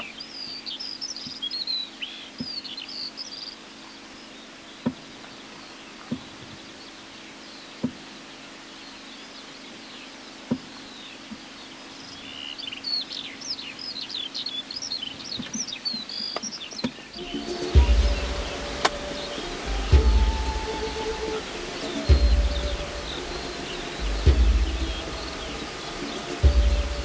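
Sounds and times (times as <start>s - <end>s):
small birds chirping: 0.0s - 27.0s
steady low hum: 17.1s - 27.0s.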